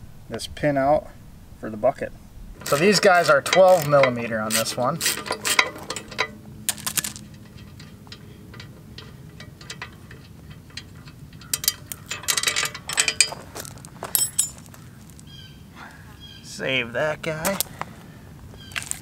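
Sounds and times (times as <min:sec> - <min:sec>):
metal bolt and nut clinking: 0:02.6 - 0:14.8.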